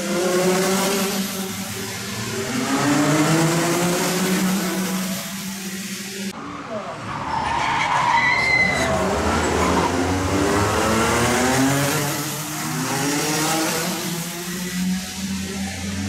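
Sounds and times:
tyre screech: 7.0s - 10.4s
kart engines screaming past: 7.0s - 16.0s.

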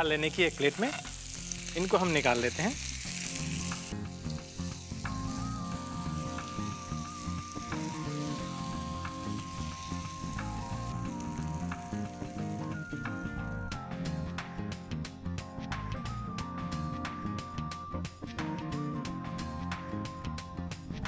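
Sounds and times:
oil sizzling in a pan: 0.0s - 14.5s
background music with held notes: 0.0s - 21.0s.

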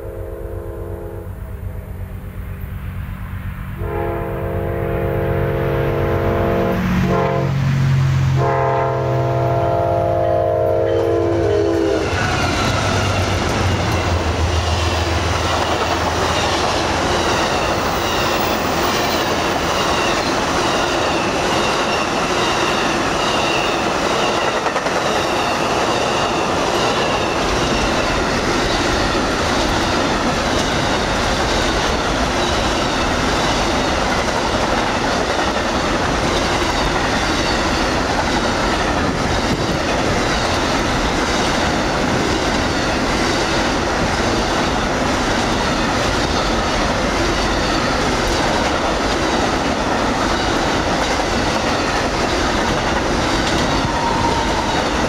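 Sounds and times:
locomotive horn chord: 0.0s - 1.6s, 3.7s - 12.0s
train rumble: 0.0s - 55.0s
wheels clacking over rail joints: 12.0s - 55.0s.

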